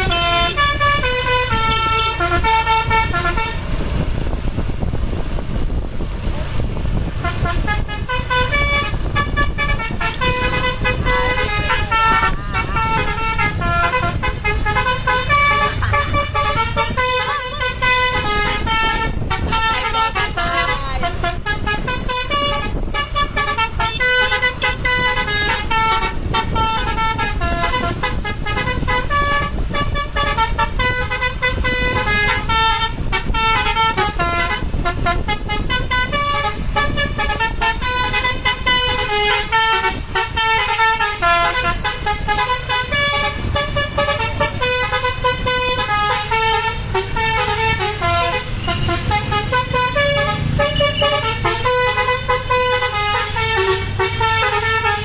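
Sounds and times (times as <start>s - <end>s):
multi-tone air horn melody: 0.0s - 4.7s, 7.0s - 55.0s
bus engine rumble: 0.0s - 55.0s.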